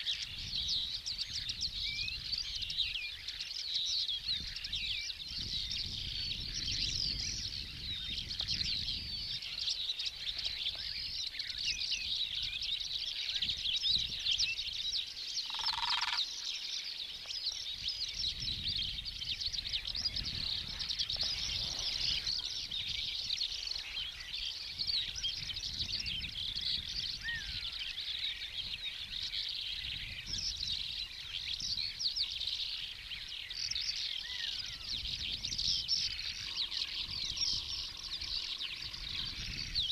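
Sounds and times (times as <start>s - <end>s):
small birds twittering: 0.0s - 39.9s.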